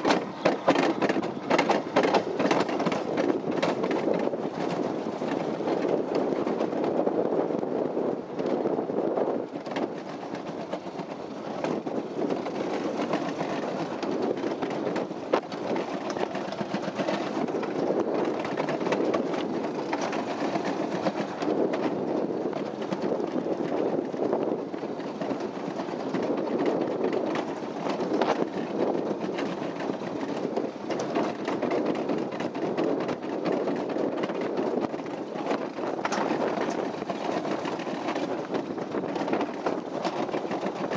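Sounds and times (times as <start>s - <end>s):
sled rolling down metal trough: 0.0s - 40.9s
small clicks and knocks: 30.6s - 40.9s.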